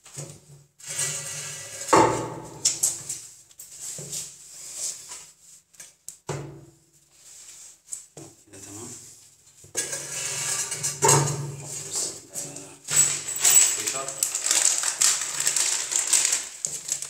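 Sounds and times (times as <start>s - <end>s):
ceramic scraping on floor: 0.8s - 3.0s, 9.7s - 12.2s
ceramic toilet knocks and clatters: 9.7s - 11.8s.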